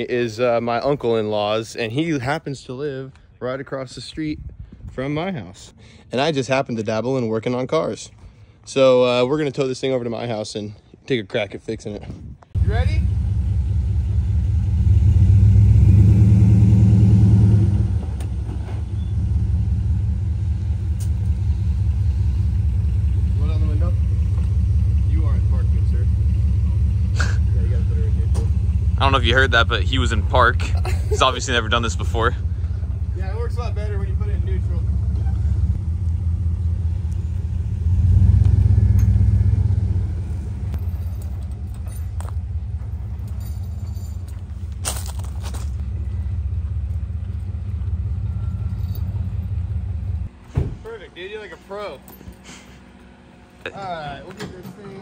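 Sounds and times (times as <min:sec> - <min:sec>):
pickup engine running: 0:12.6 - 0:55.0.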